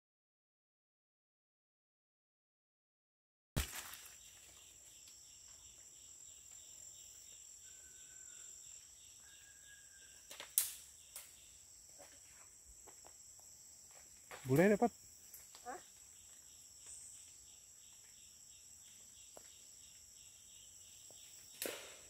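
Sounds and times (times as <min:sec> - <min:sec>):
insect chorus buzzing: 0:03.6 - 0:22.0
loud click or snap: 0:10.4 - 0:10.8.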